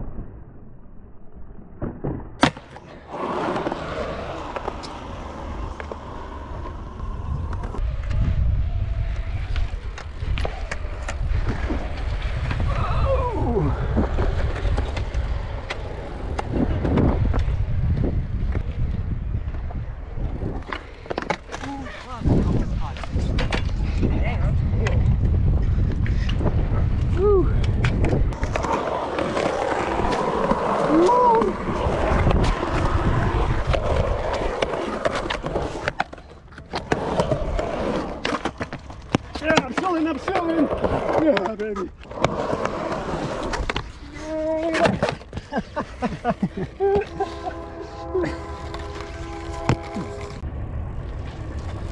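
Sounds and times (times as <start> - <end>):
bike tyres rolling on concrete: 2.4 - 51.9
wind buffeting microphone: 4.2 - 21.0, 22.1 - 35.9
skateboard clicks and clacks: 13.8 - 17.7, 27.6 - 44.0.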